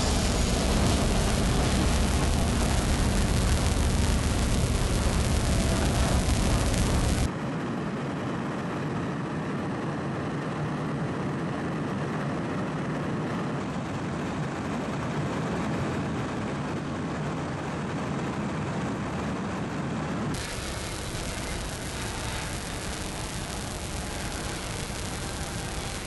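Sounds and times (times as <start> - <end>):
aircraft engines droning: 0.0 - 7.3.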